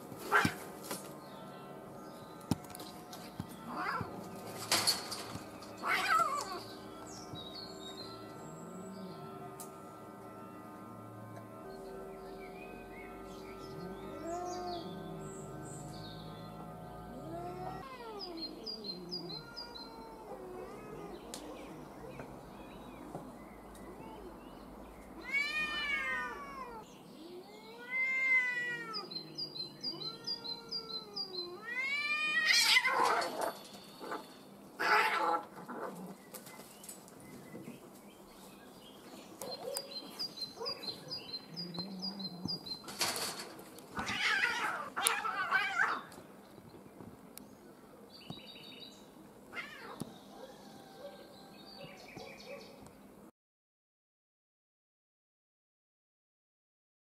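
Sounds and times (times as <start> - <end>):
cats caterwauling: 0.2 - 0.6, 3.4 - 7.1, 13.6 - 22.4, 25.2 - 36.2, 39.6 - 46.2, 49.5 - 51.3
bird chirping: 1.1 - 26.0, 26.8 - 31.6, 33.2 - 34.8, 36.0 - 44.2, 45.9 - 49.2, 49.8 - 53.1
cats harsh noisy bursts: 25.2 - 26.8, 30.0 - 34.2, 42.9 - 46.1.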